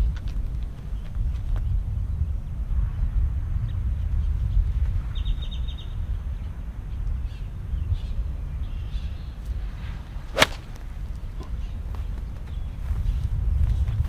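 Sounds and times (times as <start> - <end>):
wind rumble on microphone: 0.0 - 14.0
birds calling: 7.3 - 13.3
golf club striking ball: 10.3 - 11.0.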